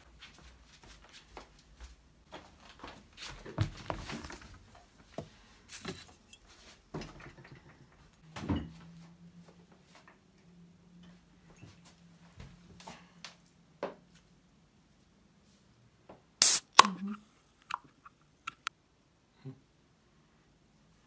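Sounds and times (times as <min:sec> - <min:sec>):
gas rushing from bottle: 0:16.4 - 0:17.2
bottle cap clicks: 0:16.4 - 0:17.9.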